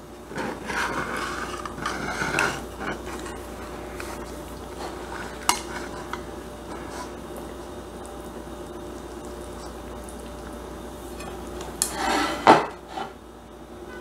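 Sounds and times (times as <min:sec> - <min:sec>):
metal utensil scraping food: 0:00.3 - 0:03.4, 0:11.2 - 0:13.2.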